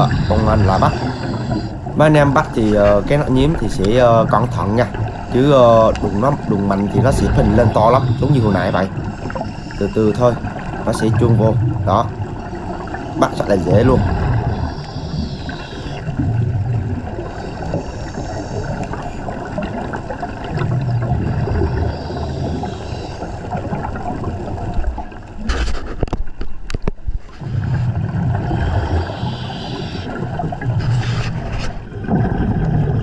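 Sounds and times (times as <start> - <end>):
diver breathing from regulator: 0.0 - 2.0, 7.6 - 10.7, 14.0 - 16.2, 17.2 - 19.4, 21.3 - 23.7, 27.4 - 31.8
gurgling exhaled bubbles: 0.0 - 25.5, 27.4 - 33.0.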